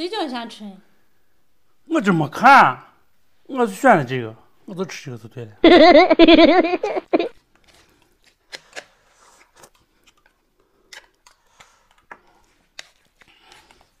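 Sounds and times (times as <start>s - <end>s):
soft chewing: 7.3s - 14.0s.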